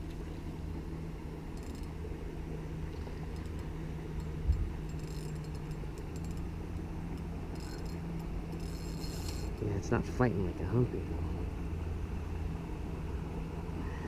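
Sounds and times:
boat motor humming: 0:00.0 - 0:14.0
fishing reel clicking: 0:03.4 - 0:06.4, 0:07.5 - 0:09.6.

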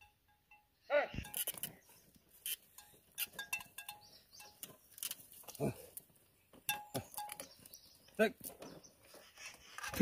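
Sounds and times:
light metallic clinks: 0:00.0 - 0:05.6, 0:06.7 - 0:08.0.

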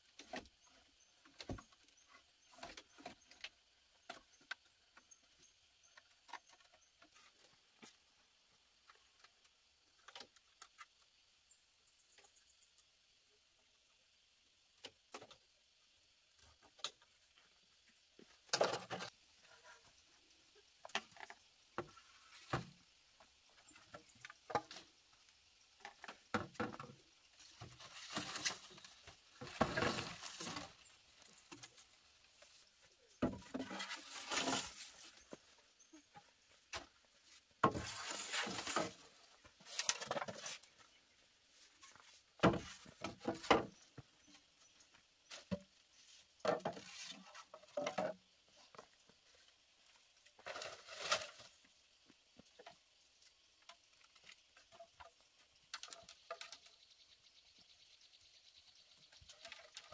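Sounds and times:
bamboo scraping and rustling: 0:00.0 - 0:11.2, 0:16.3 - 0:52.8, 0:53.6 - 0:57.1, 0:58.8 - 0:59.9
hollow knocks of bamboo poles: 0:42.4 - 0:44.1, 0:46.4 - 0:48.9.

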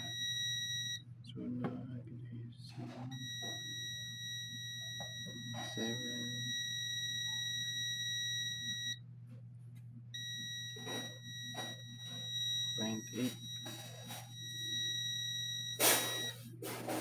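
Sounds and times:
multimeter continuity beep: 0:00.0 - 0:01.0, 0:03.1 - 0:09.0, 0:10.2 - 0:16.6
low steady hum: 0:00.0 - 0:17.0.

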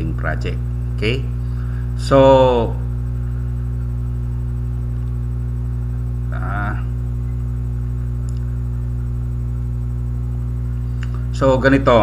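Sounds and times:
mains hum: 0:00.0 - 0:12.0.

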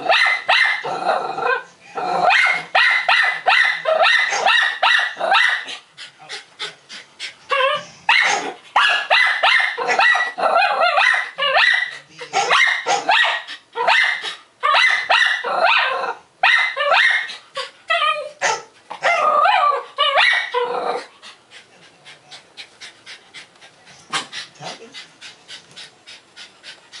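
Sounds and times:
dogs barking excitedly: 0:00.0 - 0:00.9, 0:02.2 - 0:21.1.

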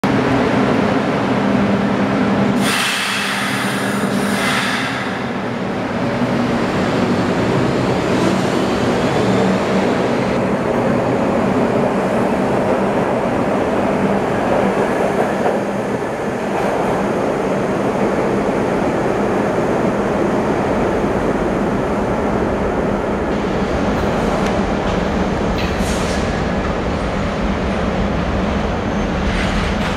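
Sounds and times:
subway train rumbling: 0:00.0 - 0:29.9
loud hiss: 0:02.6 - 0:05.4.

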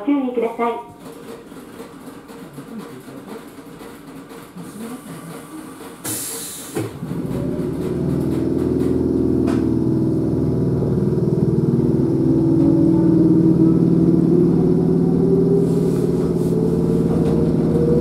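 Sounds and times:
electric train hum and rumble: 0:00.0 - 0:18.0.

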